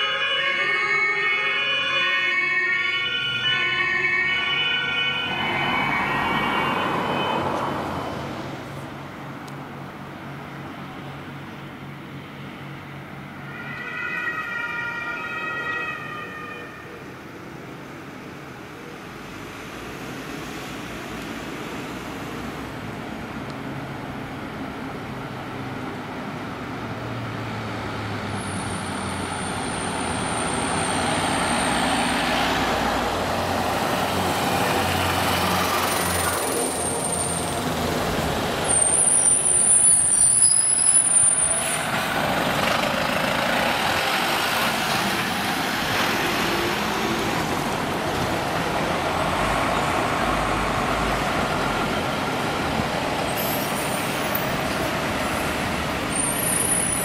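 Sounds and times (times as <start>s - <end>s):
emergency vehicles driving past: 0.0s - 57.0s.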